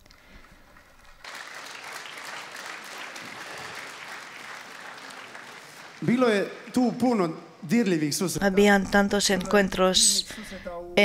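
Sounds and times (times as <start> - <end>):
large audience applauding: 0.0 - 7.3.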